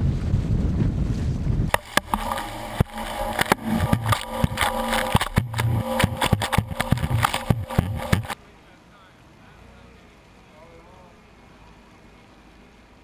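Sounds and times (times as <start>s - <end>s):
boat motor humming: 1.7s - 8.4s
water splashes and knocks: 1.7s - 8.4s.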